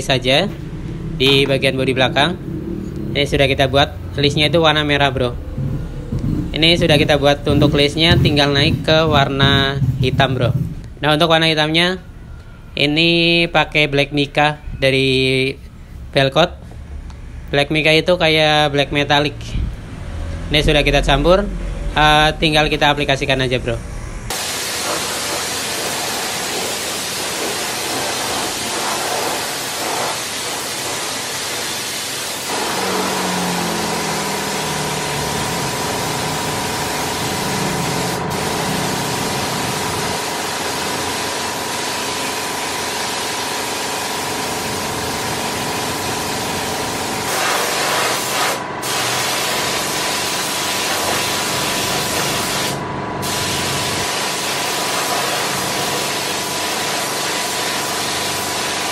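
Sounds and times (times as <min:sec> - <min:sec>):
steady machine hum: 0:00.0 - 0:58.9
spray gun hissing: 0:24.3 - 0:58.9.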